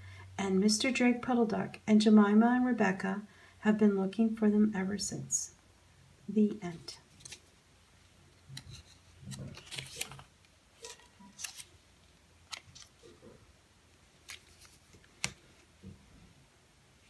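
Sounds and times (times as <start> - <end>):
paper rustling: 7.0 - 7.5, 8.5 - 11.8, 12.4 - 13.3, 14.2 - 15.7
book cover clicks: 15.2 - 15.4.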